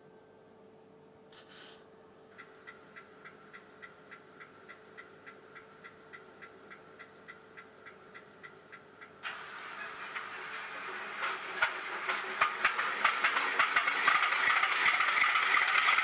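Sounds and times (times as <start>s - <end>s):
loud hiss: 1.3s - 1.8s.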